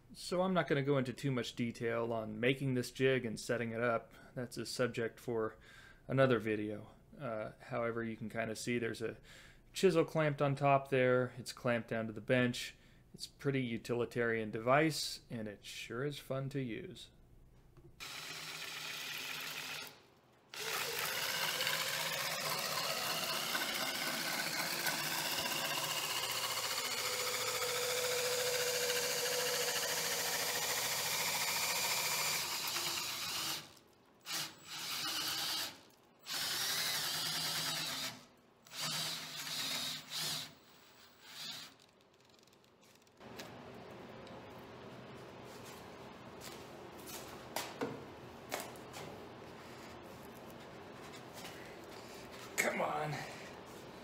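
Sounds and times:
chisel shaving wood: 0:18.0 - 0:42.1
drill spinning wooden rod: 0:18.0 - 0:43.1.

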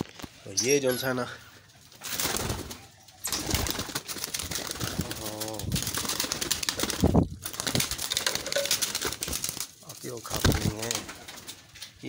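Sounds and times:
pigeons cooing: 0:00.4 - 0:06.8
rustling and clicking: 0:01.7 - 0:12.0.

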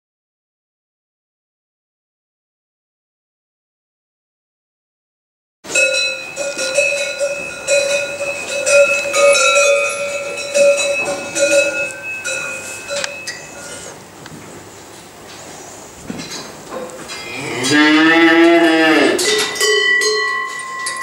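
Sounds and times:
cowbells ringing and clanging: 0:05.7 - 0:14.1, 0:16.2 - 0:21.0.

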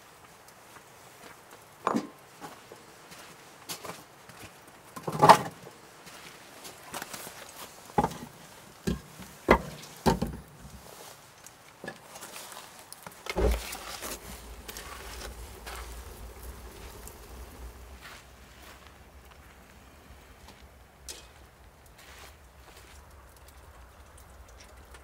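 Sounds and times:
wooden logs knocking: 0:08.9 - 0:10.5, 0:13.3 - 0:18.0
low steady rumble: 0:13.3 - 0:22.6
heavy log thump: 0:13.4 - 0:14.1.

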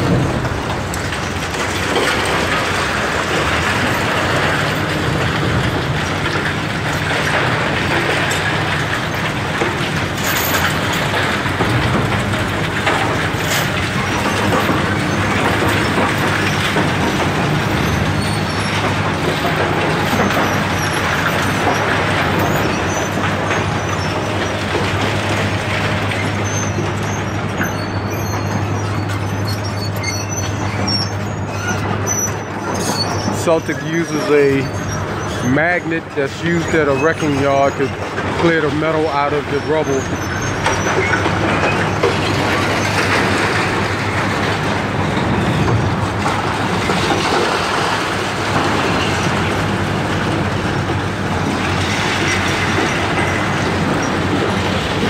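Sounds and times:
diesel engines running under load: 0:00.0 - 0:55.0.

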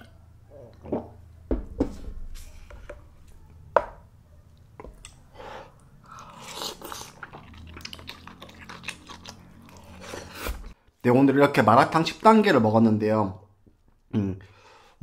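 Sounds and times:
chewing with sharp clicks: 0:04.5 - 0:10.0.

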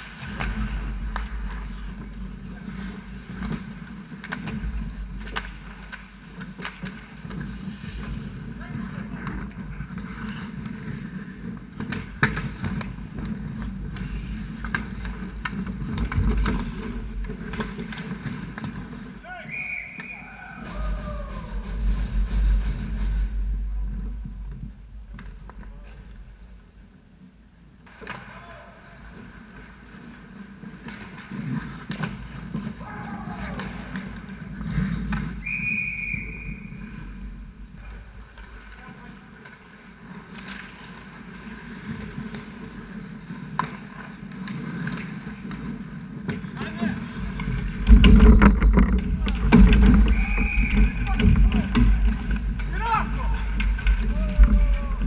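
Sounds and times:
sharp crack: 0:00.0 - 0:02.9
sticks and puck clacking: 0:00.0 - 0:27.0, 0:27.8 - 0:55.0
low rink rumble: 0:00.0 - 0:55.0
skates scraping ice: 0:00.0 - 0:55.0
referee's whistle blast: 0:19.4 - 0:20.3, 0:35.4 - 0:36.7, 0:50.1 - 0:51.0
heavy low thump: 0:47.8 - 0:52.6.

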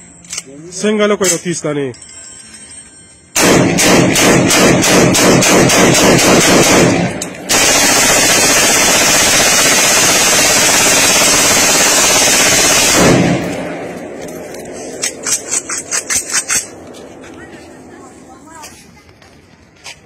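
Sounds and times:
rifle automatic fire: 0:03.4 - 0:13.9.

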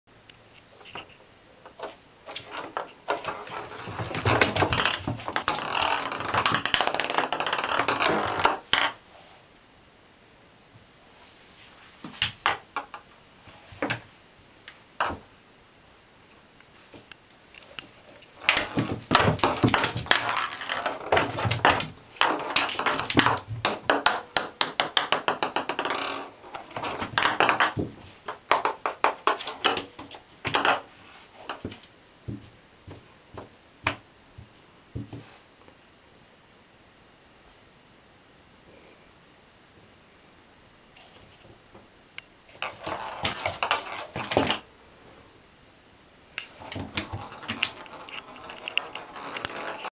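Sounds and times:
ping-pong ball bouncing in bathtub: 0:18.5 - 0:29.9.

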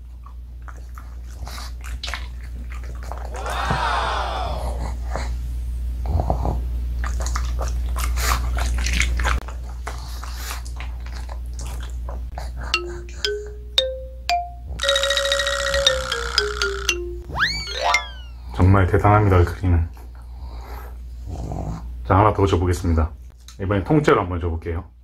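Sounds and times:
held note stepping down: 0:12.8 - 0:18.4
plucked notes stepping upward: 0:12.8 - 0:18.4.

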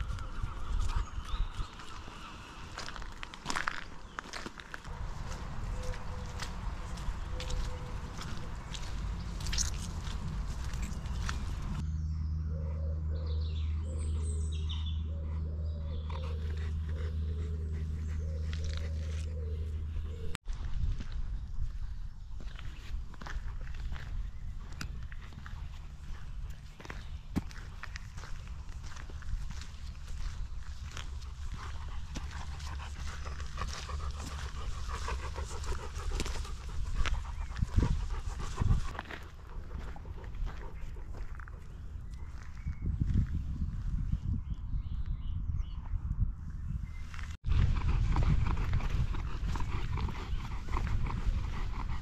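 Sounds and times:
birds chirping: 0:00.0 - 0:20.4, 0:21.7 - 0:47.3
low rumble: 0:04.9 - 0:52.0
dog panting: 0:13.7 - 0:19.8, 0:30.9 - 0:41.7, 0:47.8 - 0:52.0.

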